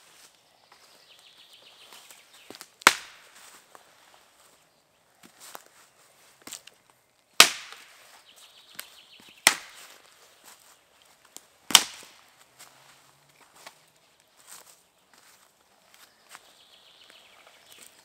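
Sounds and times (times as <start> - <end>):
axe chopping wood: 2.5 - 3.3, 7.4 - 7.9, 9.4 - 9.9, 11.7 - 12.2.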